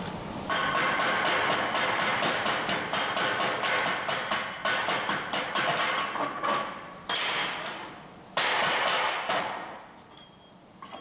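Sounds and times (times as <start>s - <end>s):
faint metal clinks: 10.0s - 11.0s
steel clanks ringing: 10.1s - 11.0s.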